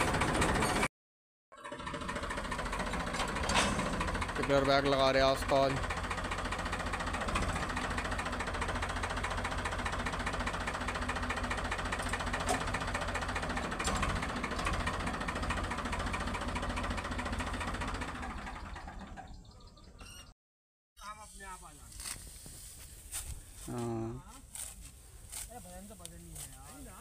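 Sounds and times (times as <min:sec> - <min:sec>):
tractor diesel engine running: 0:00.0 - 0:00.9, 0:01.5 - 0:20.2.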